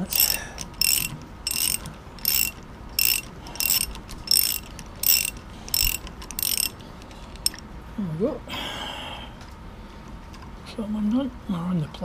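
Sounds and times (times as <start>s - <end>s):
ratchet wrench clicking: 0.0s - 7.6s.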